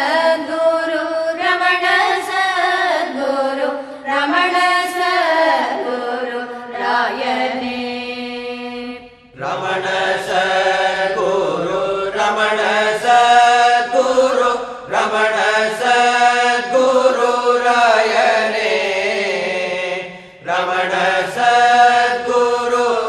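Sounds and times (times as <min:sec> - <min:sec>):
devotional chanting: 0:00.0 - 0:23.0.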